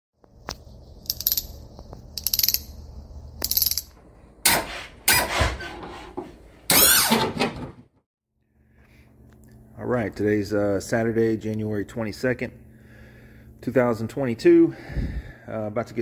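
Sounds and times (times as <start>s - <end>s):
low electrical hum: 0.2s - 5.1s, 8.4s - 16.0s.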